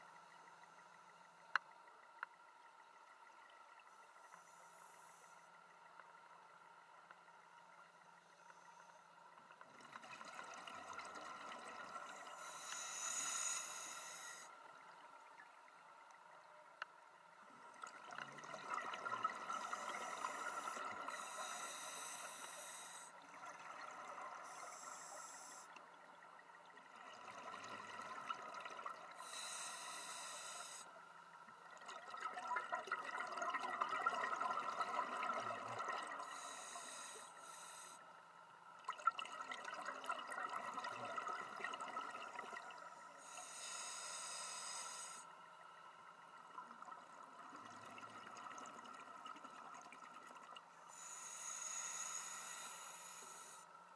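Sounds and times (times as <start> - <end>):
regulator inhalation hiss: 12.1 - 14.6, 19.5 - 23.2, 24.4 - 25.8, 29.2 - 31.0, 36.2 - 38.1, 43.2 - 45.3, 50.9 - 53.8
exhaled bubbles gurgling: 17.6 - 21.8, 31.6 - 36.6, 38.8 - 44.0, 46.4 - 51.4.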